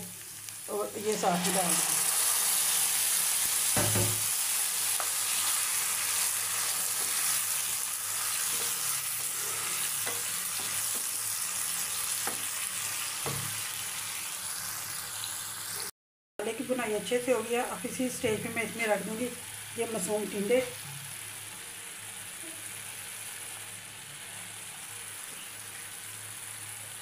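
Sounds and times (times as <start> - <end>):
paste sizzling in a pan: 0.0 - 15.9, 18.6 - 27.0
wooden spoon knocking a pan: 3.8 - 4.3.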